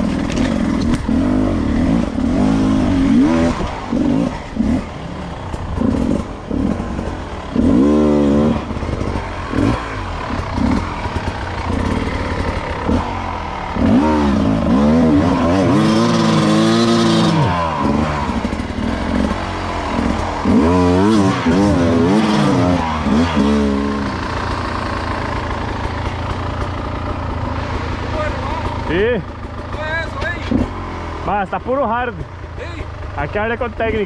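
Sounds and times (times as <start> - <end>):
motorcycle engine revving: 0.0 - 34.0.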